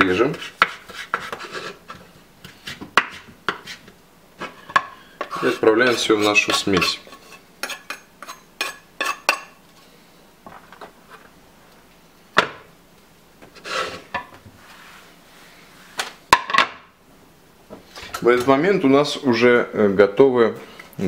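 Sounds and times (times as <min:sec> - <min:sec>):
knife scraping on wooden board: 0:00.0 - 0:09.4, 0:13.6 - 0:14.2.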